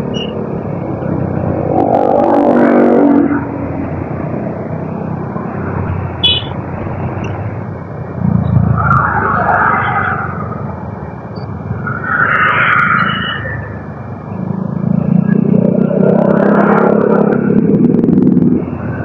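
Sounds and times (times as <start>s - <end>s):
motorcycle engine and road rumble: 0.0s - 19.0s
high beep: 6.2s - 6.6s.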